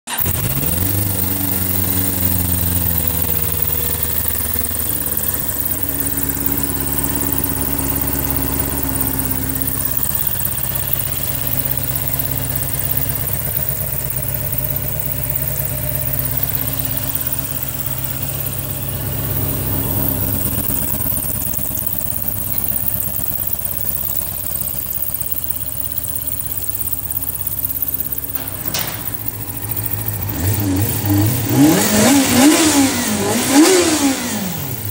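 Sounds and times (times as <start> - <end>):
motorcycle engine idling: 0.1 - 34.9
click: 3.1 - 19.0, 19.8 - 31.6.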